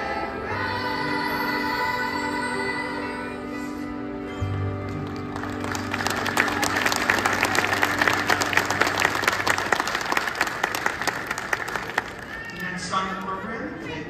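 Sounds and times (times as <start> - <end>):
audience applause: 4.8 - 13.2.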